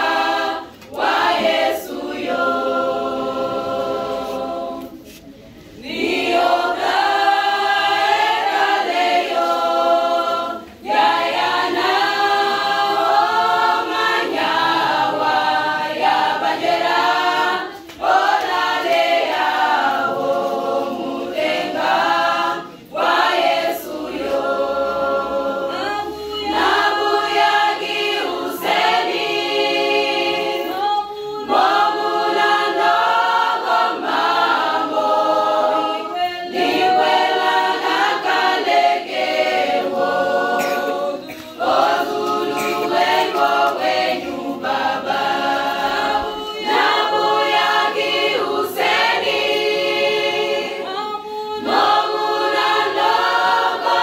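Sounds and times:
women's choir singing a cappella: 0:00.0 - 0:54.0.

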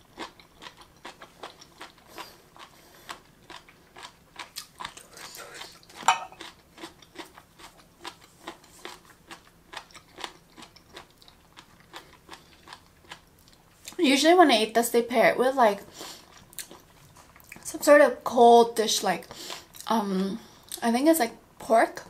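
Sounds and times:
crunchy chewing: 0:00.0 - 0:14.0.

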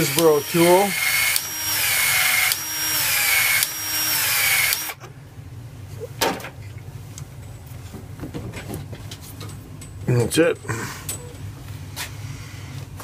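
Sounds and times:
pipe expansion tool motor: 0:00.0 - 0:05.0.

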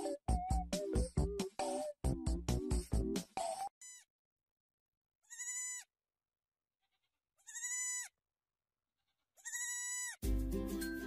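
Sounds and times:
goat kid bleating: 0:03.8 - 0:04.1, 0:05.2 - 0:05.9, 0:06.8 - 0:08.2, 0:09.0 - 0:10.2.

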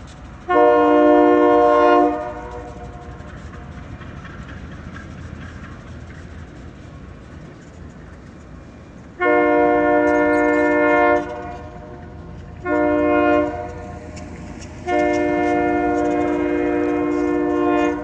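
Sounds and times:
locomotive engine rumbling: 0:00.0 - 0:18.0
locomotive air horn blasts: 0:00.5 - 0:03.0, 0:09.2 - 0:12.0, 0:12.6 - 0:14.2, 0:14.8 - 0:18.0.

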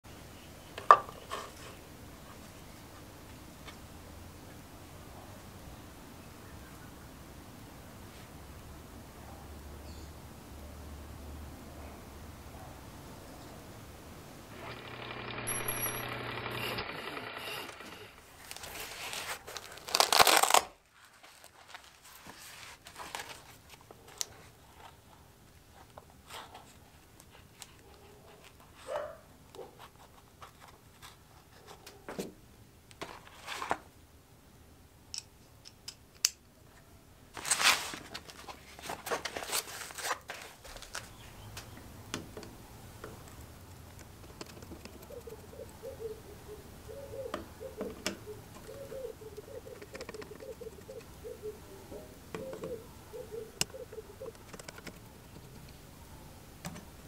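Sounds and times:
screw squeaking: 0:14.5 - 0:18.2
fabric rustling: 0:18.2 - 0:25.0, 0:37.3 - 0:41.2.

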